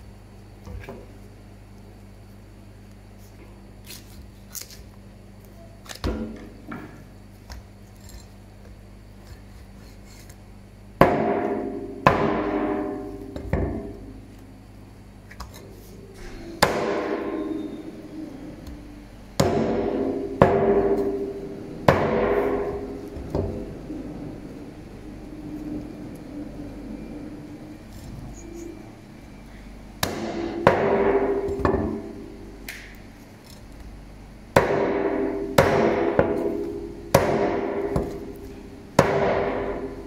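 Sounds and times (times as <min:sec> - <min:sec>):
cleaver chopping meat: 0:19.4 - 0:21.2, 0:21.9 - 0:23.3, 0:34.6 - 0:38.2, 0:39.0 - 0:39.7.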